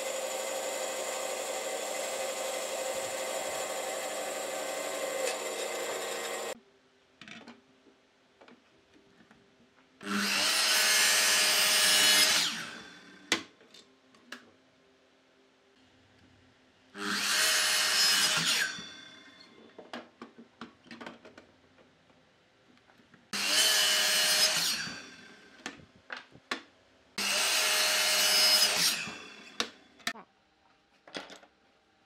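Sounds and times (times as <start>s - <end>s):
miter saw cutting wood: 0.0s - 6.6s, 10.0s - 13.3s, 17.0s - 19.2s, 23.4s - 25.6s, 27.2s - 29.8s.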